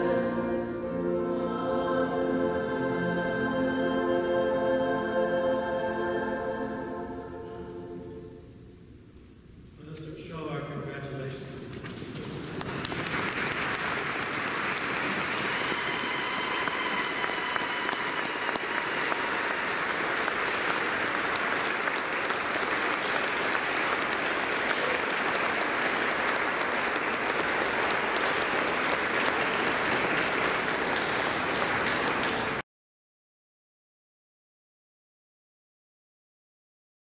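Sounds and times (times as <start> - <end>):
congregation applauding: 11.8 - 32.6.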